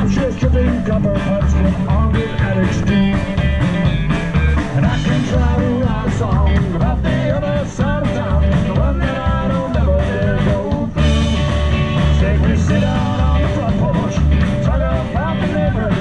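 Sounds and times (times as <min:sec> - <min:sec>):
rock and roll band playing: 0:00.0 - 0:16.0.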